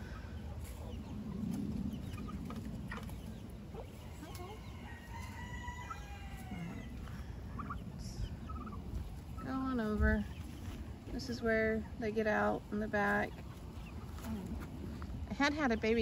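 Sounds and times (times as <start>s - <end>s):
chickens clucking: 0.0s - 16.0s
rooster crowing: 4.4s - 7.0s.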